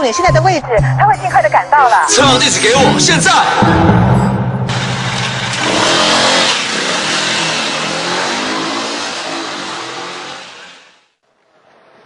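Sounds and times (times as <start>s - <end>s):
motorbike engine revving: 4.6s - 11.0s.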